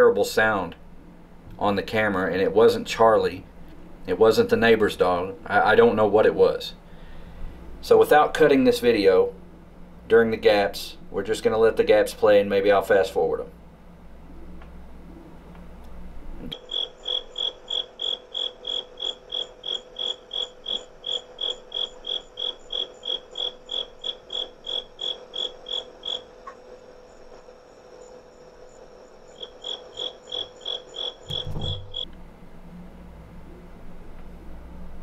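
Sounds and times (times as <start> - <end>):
cricket chirping: 16.5 - 32.1
brief low rumble: 31.3 - 32.0.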